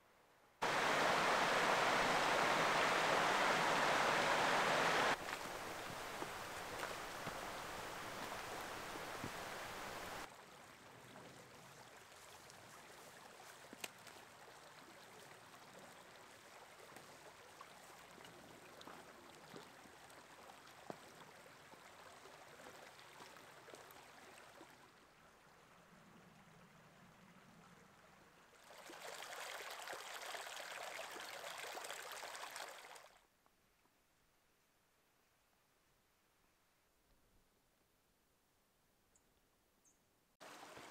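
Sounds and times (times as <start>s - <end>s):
rocky creek flowing: 0.6s - 25.8s, 27.7s - 33.2s, 40.4s - 40.9s.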